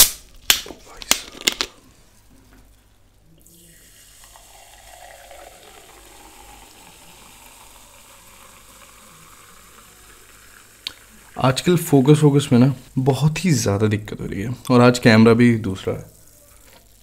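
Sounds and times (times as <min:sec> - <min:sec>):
cola fizzing: 0:03.4 - 0:12.8.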